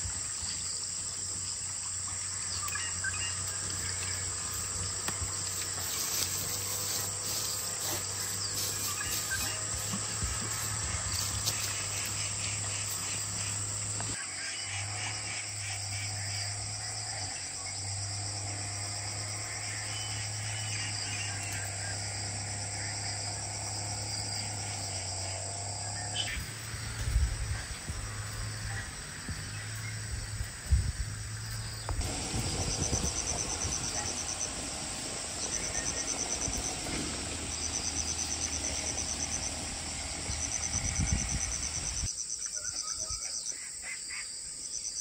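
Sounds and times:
insects chirring: 0.0s - 45.0s.

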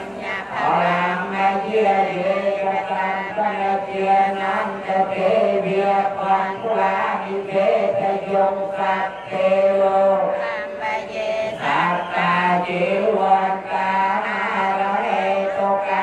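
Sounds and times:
chanting voice: 0.0s - 16.0s.

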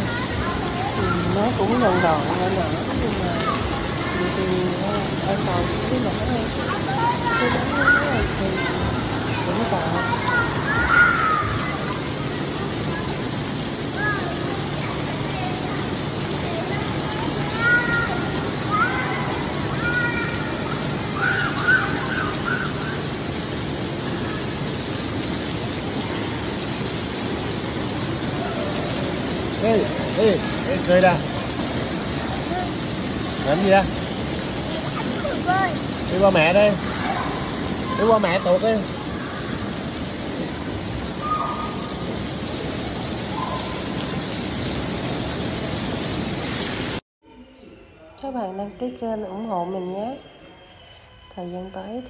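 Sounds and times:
children squealing and shouting: 0.0s - 4.5s, 6.5s - 25.2s, 34.6s - 44.2s
water rushing and splashing: 0.0s - 47.0s.

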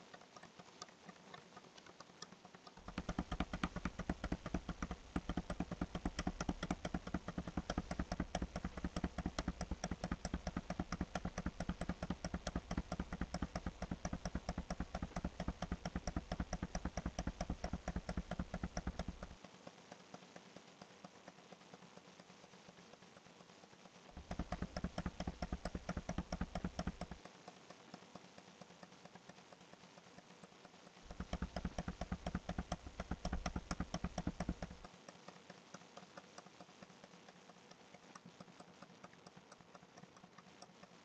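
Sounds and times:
computer mouse clicking: 0.0s - 41.0s.

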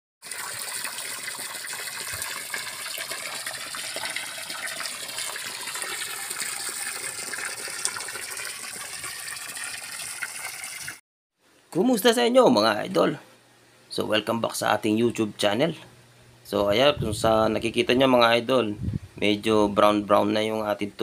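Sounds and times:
water splashing and gushing: 0.2s - 11.0s.

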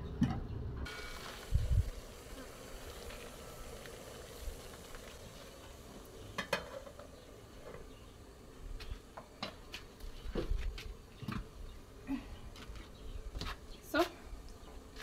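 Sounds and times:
cooking pots and utensils clinking: 6.2s - 7.3s.

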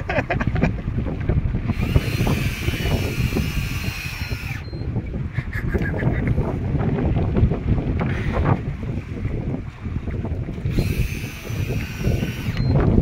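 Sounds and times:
sea noise: 0.0s - 13.0s
wind on microphone: 0.0s - 13.0s
fishing reel whirring: 1.7s - 4.9s, 10.6s - 13.0s.

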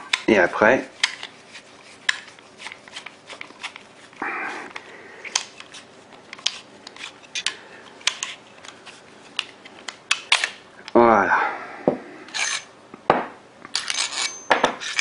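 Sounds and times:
metal parts clicking: 12.3s - 12.7s, 13.7s - 15.0s
short scraping rasp: 12.3s - 12.7s.

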